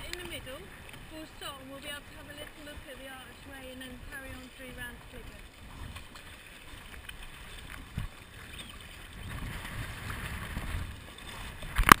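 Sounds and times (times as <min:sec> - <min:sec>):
water sloshing around kayak: 0:00.0 - 0:12.0.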